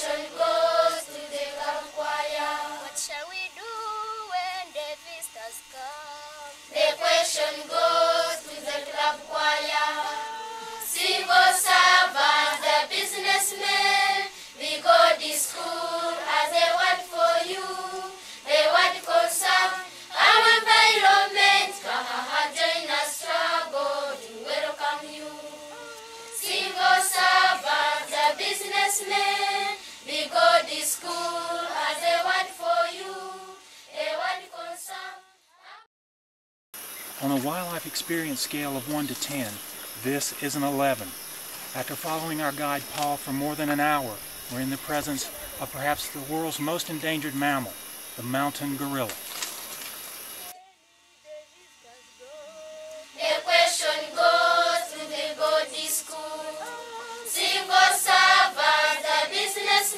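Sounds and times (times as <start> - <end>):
children's choir singing: 0.0 - 4.7, 5.8 - 35.9, 52.8 - 59.9.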